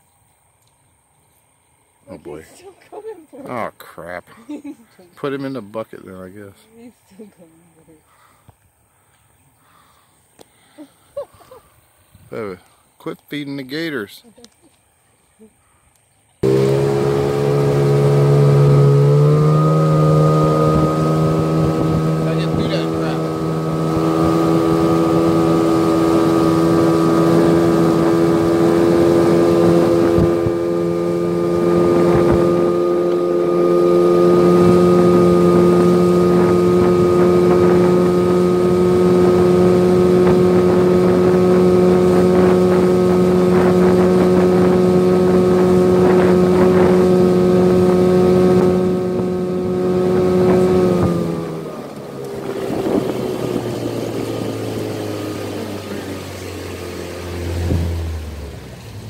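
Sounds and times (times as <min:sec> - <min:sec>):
wind on microphone: 0:16.4 - 0:56.3
boat motor running: 0:16.4 - 0:59.0.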